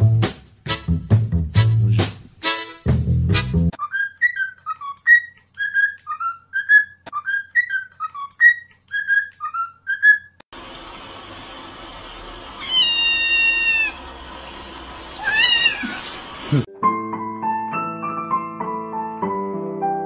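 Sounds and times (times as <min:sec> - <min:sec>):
person whistling a tune: 0:03.8 - 0:10.3
cat meowing: 0:12.6 - 0:14.0, 0:15.2 - 0:16.2.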